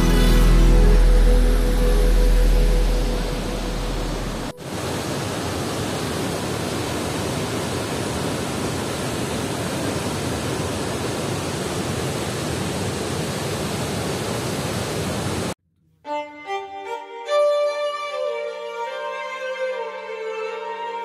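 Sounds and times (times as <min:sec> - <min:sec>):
background song: 0:00.0 - 0:04.6
waterfall roaring: 0:00.0 - 0:15.6.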